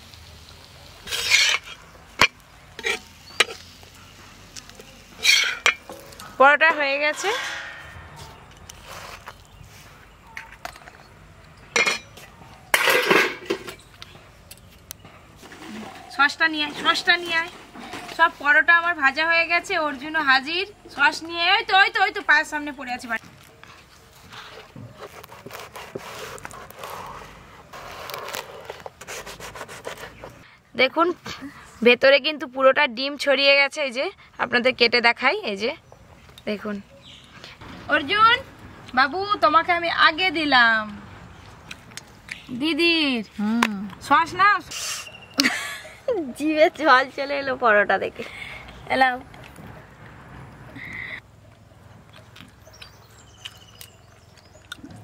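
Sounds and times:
knife scraping through crisp bread: 1.0 - 1.9, 8.7 - 9.8, 23.8 - 30.4
metal spatula scraping griddle: 1.0 - 3.8, 5.0 - 9.3.

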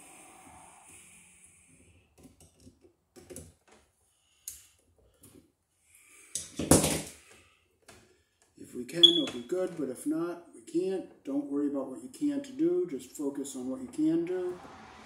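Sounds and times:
brief rush of noise: 0.0 - 1.7, 14.5 - 15.0.

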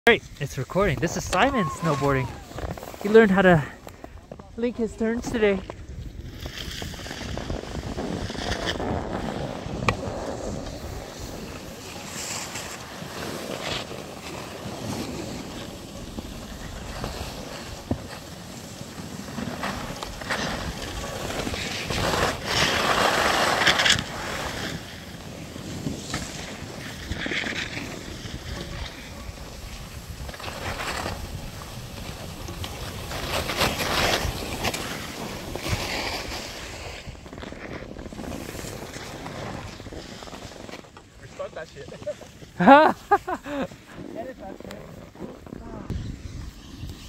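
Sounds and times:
skis scraping on packed snow: 0.1 - 47.0
wind rushing over microphone: 4.4 - 12.2, 43.2 - 47.0.

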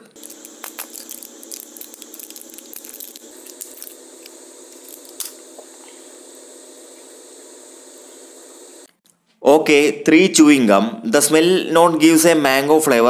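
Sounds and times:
gum packaging crinkling: 0.0 - 5.4
steady hiss: 0.0 - 8.9.

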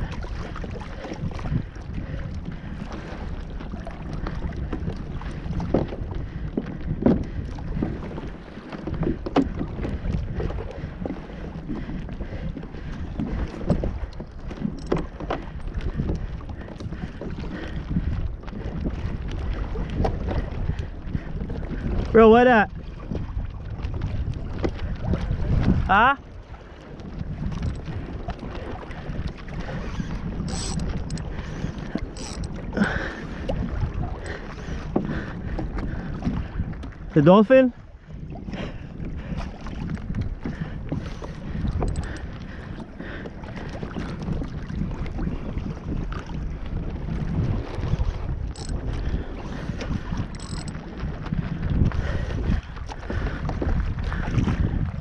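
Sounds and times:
water slapping plastic hull: 0.0 - 22.1
small waves slapping a hull: 0.0 - 55.0
wind buffeting microphone: 0.0 - 55.0.

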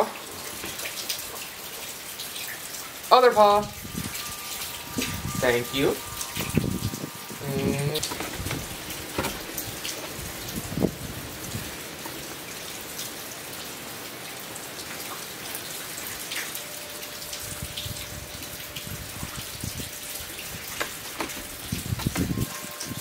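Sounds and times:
steady rain hiss: 0.0 - 23.0
water drips: 0.0 - 23.0.

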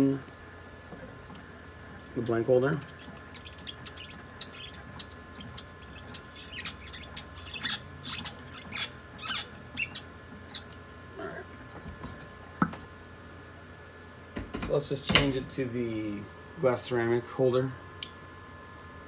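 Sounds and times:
wrench metal squeaks and scrapes: 2.7 - 10.6.

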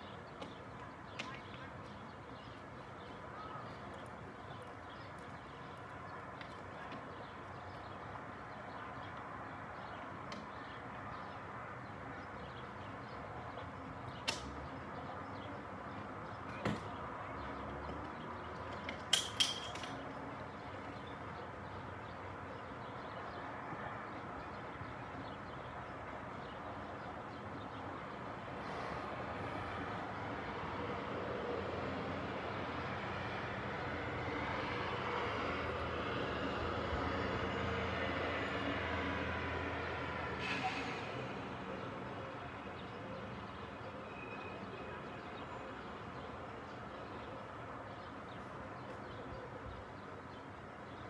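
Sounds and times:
city hum: 0.0 - 51.0
distant traffic: 0.0 - 51.0.

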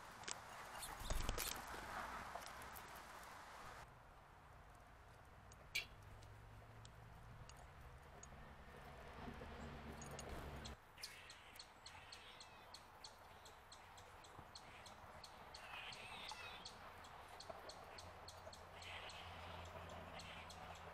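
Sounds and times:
light sharp ticks: 4.6 - 8.4
faint birds calling: 10.0 - 20.9.

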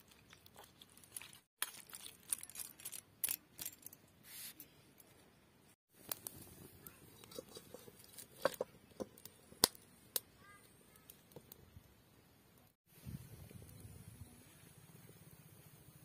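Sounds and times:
twigs crackling in fire: 0.0 - 3.7, 5.9 - 11.9
fire popping: 5.9 - 11.9.

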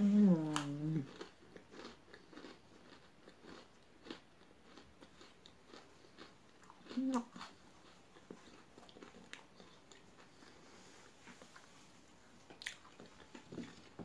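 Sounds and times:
person humming: 0.0 - 1.1
chewing with wet crunches: 0.5 - 11.7, 12.3 - 14.0.

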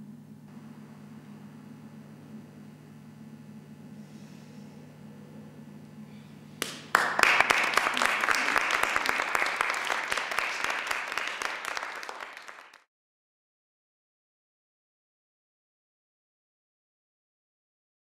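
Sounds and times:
audience applauding: 6.6 - 12.9.

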